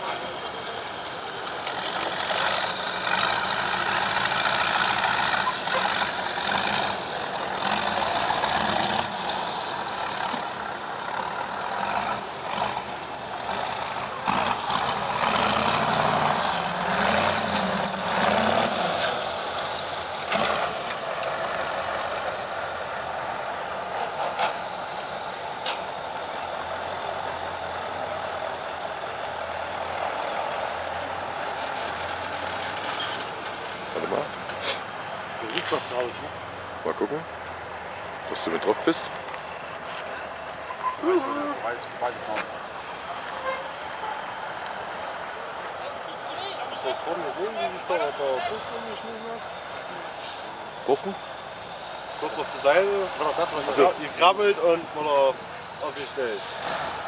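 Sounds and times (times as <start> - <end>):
diesel truck engine revving: 0.0 - 57.0.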